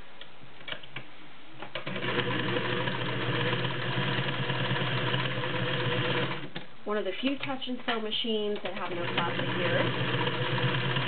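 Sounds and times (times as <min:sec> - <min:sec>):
sewing machine whirring: 0:01.7 - 0:06.6, 0:08.6 - 0:11.0.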